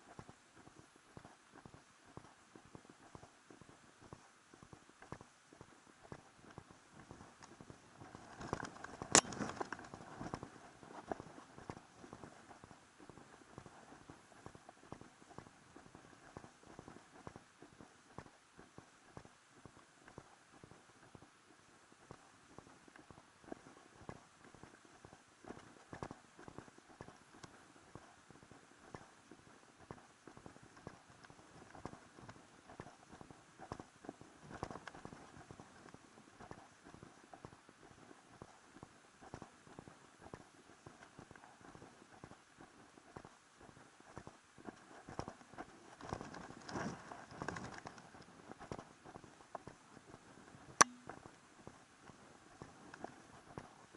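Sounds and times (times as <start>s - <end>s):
footsteps on dirt trail: 0.1s - 21.3s.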